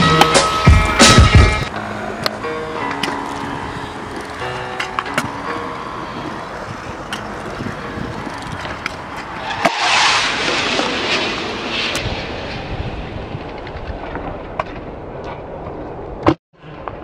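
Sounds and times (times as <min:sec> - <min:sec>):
scooter wheels rolling on concrete: 0:00.0 - 0:12.1.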